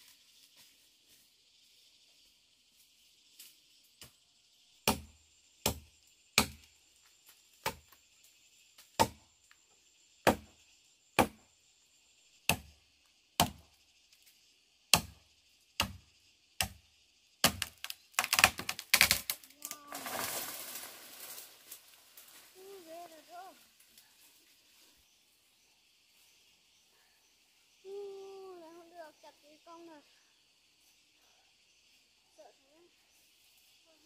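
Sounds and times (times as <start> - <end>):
insects hissing: 0.0 - 34.0
blade chopping into wood: 6.4 - 6.6, 11.2 - 11.4, 14.9 - 15.2, 17.4 - 19.4.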